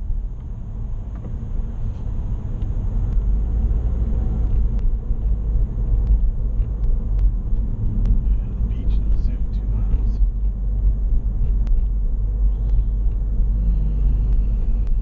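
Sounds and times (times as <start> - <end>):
car engine and tyre rumble: 0.0 - 15.0
faint ticks: 5.9 - 15.0.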